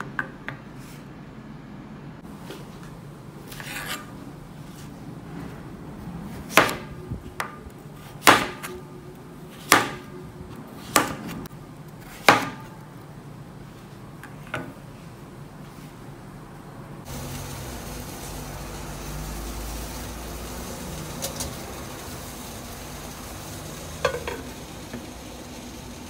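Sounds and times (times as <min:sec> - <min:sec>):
knife chopping on plastic board: 0:09.6 - 0:10.0, 0:10.8 - 0:11.4, 0:12.1 - 0:12.7.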